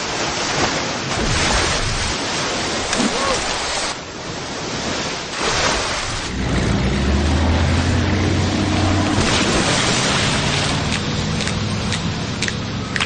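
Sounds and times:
rushing water and spray: 0:00.0 - 0:13.0
speedboat engine droning: 0:06.0 - 0:13.0.

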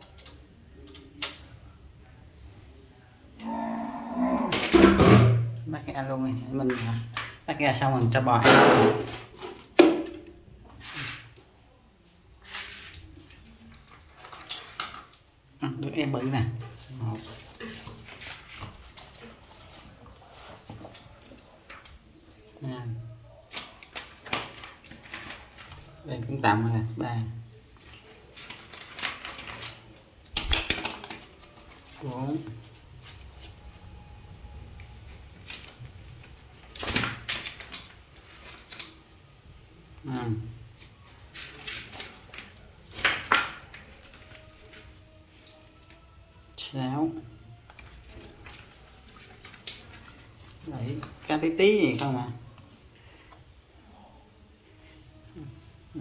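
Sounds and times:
rustling and scraping: 0:10.6 - 0:15.2, 0:16.1 - 0:22.2, 0:27.6 - 0:34.0, 0:47.6 - 0:51.4
wet fish slapping on tiles: 0:12.4 - 0:15.3, 0:16.0 - 0:22.5, 0:23.5 - 0:26.0, 0:27.6 - 0:33.8, 0:35.1 - 0:39.2, 0:40.7 - 0:46.0, 0:47.6 - 0:52.2.

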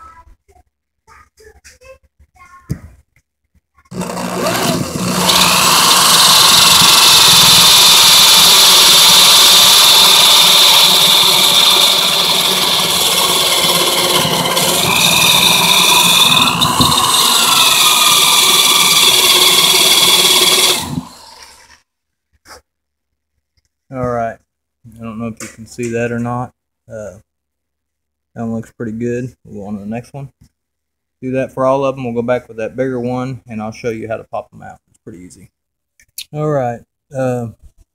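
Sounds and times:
electric drill boring: 0:03.9 - 0:21.8.

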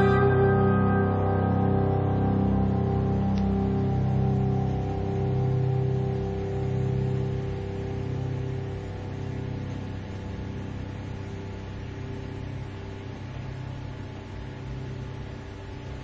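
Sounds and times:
low rumble with hiss: 0:00.0 - 0:16.0.

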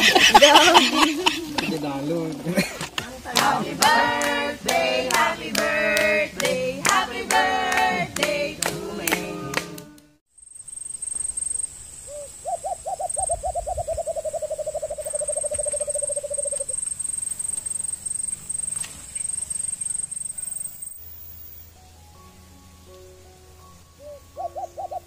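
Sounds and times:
pulsing insect trill: 0:10.3 - 0:21.8
hoot-like animal calls: 0:11.0 - 0:20.8, 0:24.0 - 0:25.0.

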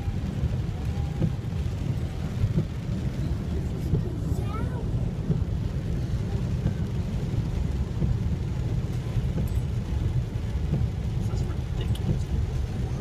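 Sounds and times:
car engine and road noise: 0:00.0 - 0:13.0
heavy rain: 0:00.0 - 0:13.0
water surging against car: 0:00.0 - 0:13.0.

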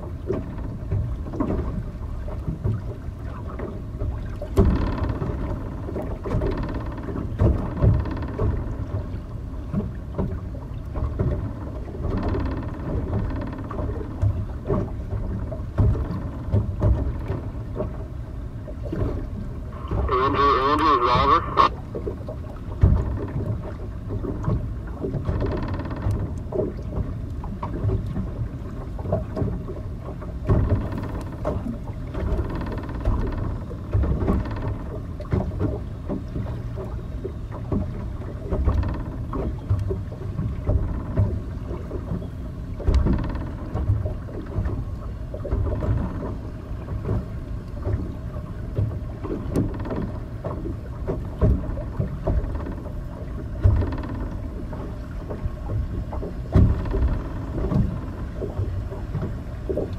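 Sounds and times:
rushing splashing water: 0:18.7 - 0:25.8.

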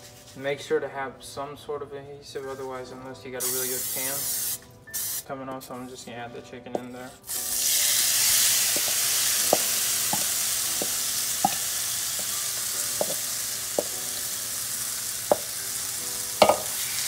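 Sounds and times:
chicken sizzling in a frying pan: 0:03.4 - 0:04.6, 0:07.3 - 0:17.0
spoon knocking against a pan: 0:08.8 - 0:12.4, 0:13.0 - 0:14.0, 0:15.3 - 0:15.6, 0:16.4 - 0:16.8.

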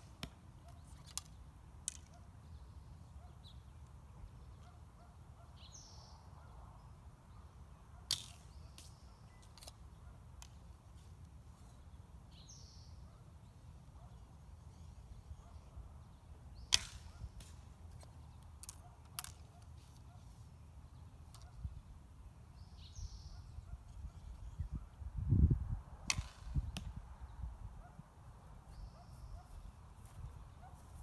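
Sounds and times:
bird chirping: 0:19.8 - 0:25.0.

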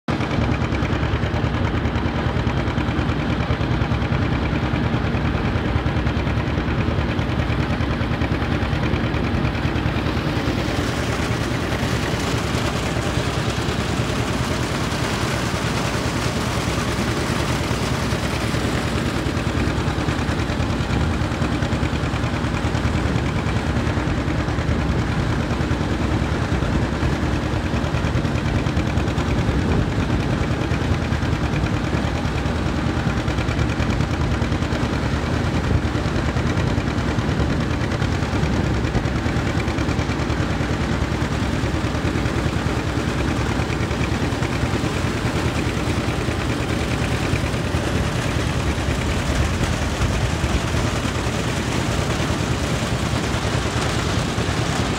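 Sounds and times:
tractor engine running: 0:00.1 - 0:54.9.

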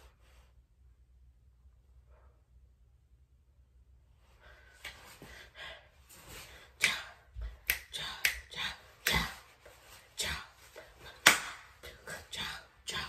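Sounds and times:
finger snaps: 0:07.6 - 0:09.2.

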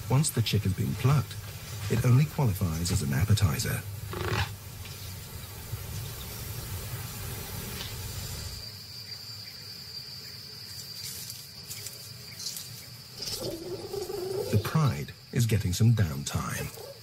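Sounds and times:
soft hiss: 0:00.0 - 0:16.5
high-pitched insect drone: 0:07.1 - 0:17.0.

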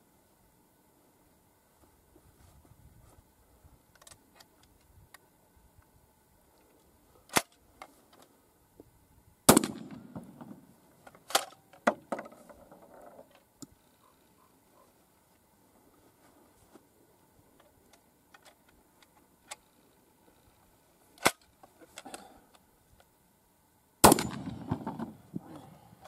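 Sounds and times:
shotgun shot booming: 0:09.5 - 0:10.6, 0:24.0 - 0:25.2.

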